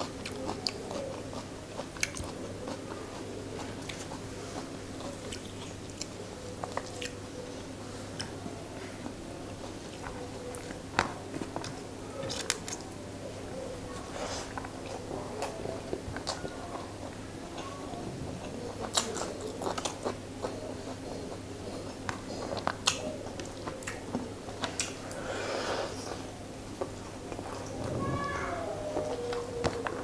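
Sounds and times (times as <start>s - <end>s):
wet mouth smacking and chewing: 0.0s - 7.2s, 18.4s - 25.0s.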